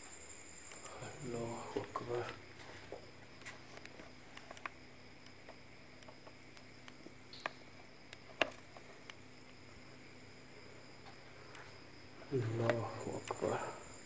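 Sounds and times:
faint steady hiss and hum: 0.0 - 14.0
small clicks and taps: 1.8 - 9.6.

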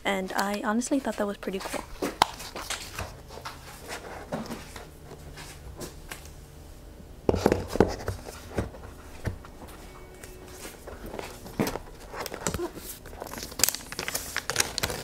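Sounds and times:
paper rustling: 10.4 - 15.0.

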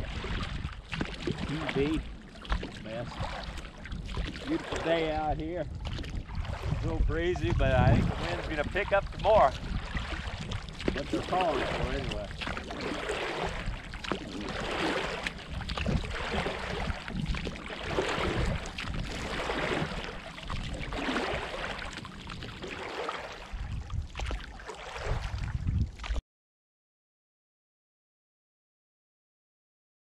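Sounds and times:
water sloshing around boat: 0.0 - 26.2
wind rumbling on microphone: 0.0 - 26.2.

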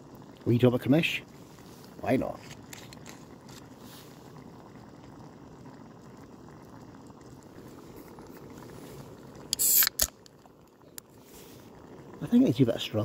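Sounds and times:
water bubbling in a pot: 0.0 - 13.0
loud short hiss: 9.5 - 10.2.

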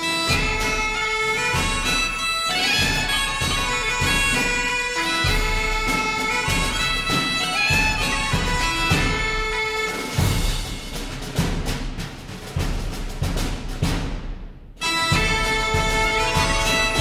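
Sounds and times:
bagpipe music: 0.0 - 11.0, 14.8 - 17.0
steady drum beat: 0.0 - 17.0.

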